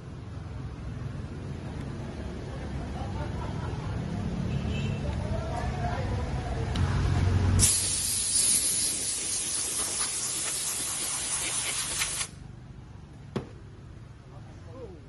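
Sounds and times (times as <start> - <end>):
compressed air hissing: 7.6 - 12.4.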